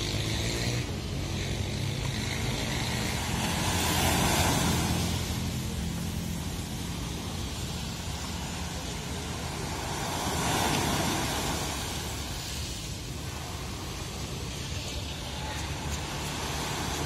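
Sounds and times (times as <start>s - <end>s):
low engine hum: 0.0s - 17.0s
sea waves: 0.0s - 17.0s.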